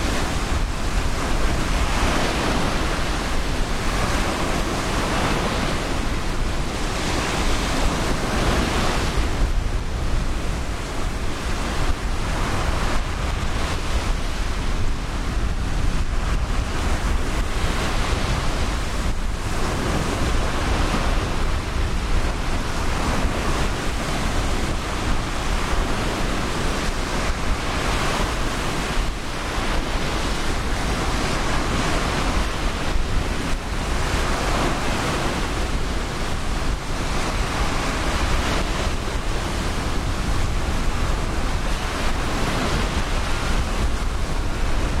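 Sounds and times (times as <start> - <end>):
surf breaking on a beach: 0.0 - 45.0
wind buffeting microphone: 0.0 - 45.0.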